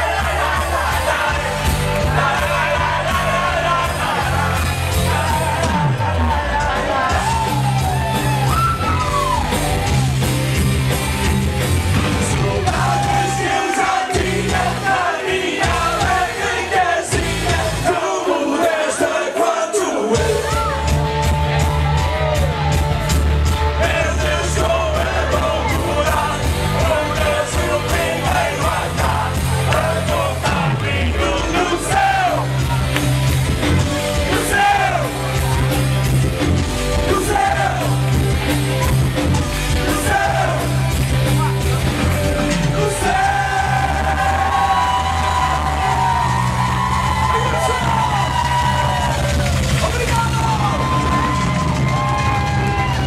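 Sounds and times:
live rock band playing: 0.0s - 15.0s, 20.2s - 53.0s
crowd yelling: 0.0s - 53.0s
lead singer singing: 23.8s - 32.6s, 37.0s - 38.2s, 42.5s - 45.0s.

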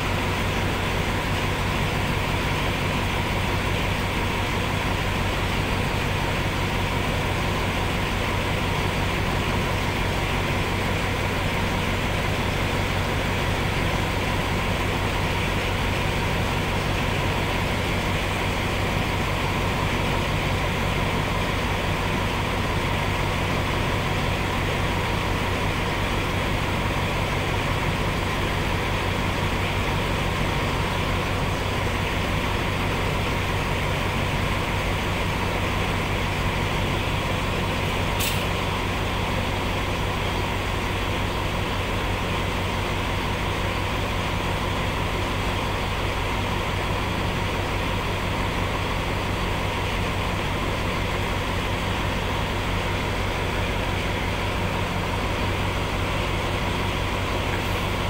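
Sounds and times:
train diesel engine idling: 0.0s - 58.0s
brief hiss: 38.2s - 38.6s.

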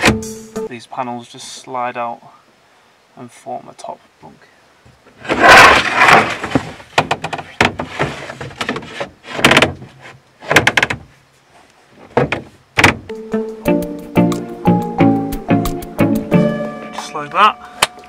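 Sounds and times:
wooden panels scraping on rails: 5.1s - 11.1s.

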